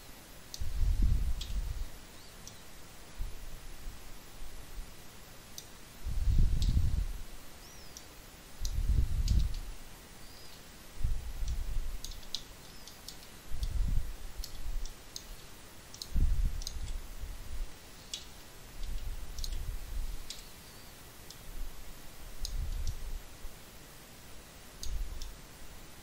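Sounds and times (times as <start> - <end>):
computer mouse clicking: 7.9 - 9.6, 11.4 - 13.8, 14.4 - 17.0, 18.1 - 20.5.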